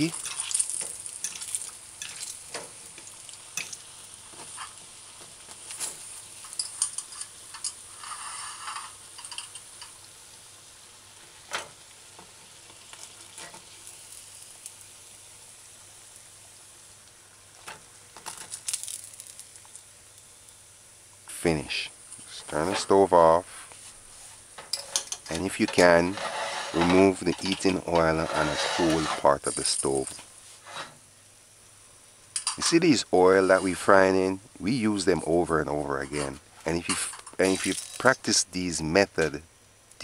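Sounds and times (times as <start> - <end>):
fritters sizzling in oil: 0.0 - 21.3, 36.4 - 38.2.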